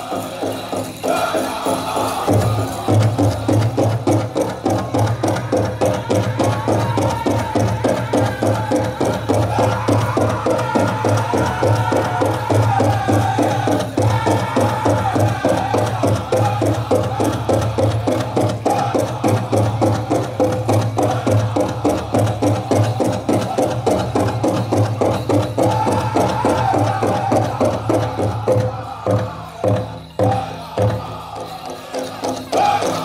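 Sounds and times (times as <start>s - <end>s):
big drum fast beat: 0.0s - 33.0s
drum group singing: 0.0s - 33.0s.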